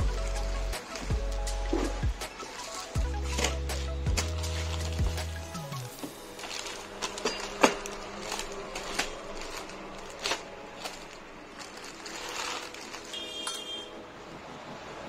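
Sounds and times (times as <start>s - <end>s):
plastic bag crinkling: 0.0s - 13.9s
plastic snapping: 6.0s - 13.6s.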